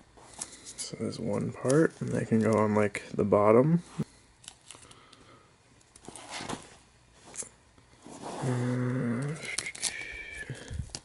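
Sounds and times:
man humming: 0:08.4 - 0:10.9.

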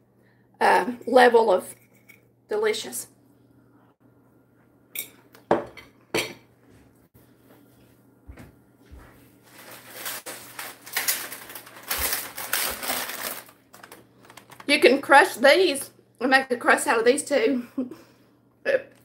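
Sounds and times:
plastic package crinkling: 0:09.5 - 0:15.0.

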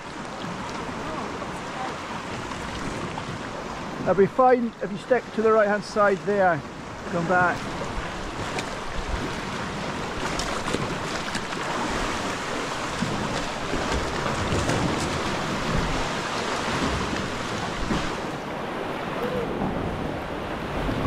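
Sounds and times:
sea water sloshing against rocks: 0:00.0 - 0:04.2, 0:05.2 - 0:21.0
wind on microphone: 0:07.6 - 0:21.0.

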